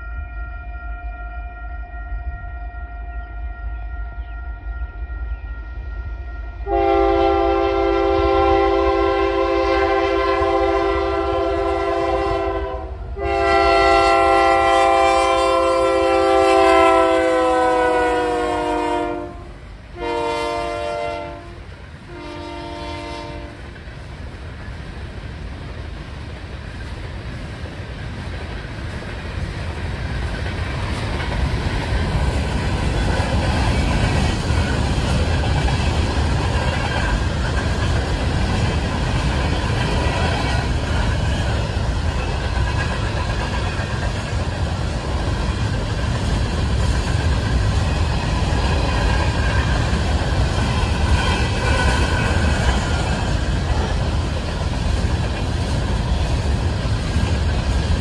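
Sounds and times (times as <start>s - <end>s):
locomotive air horn blasts: 0.2s - 23.6s
freight cars rumbling and clattering: 23.8s - 58.0s.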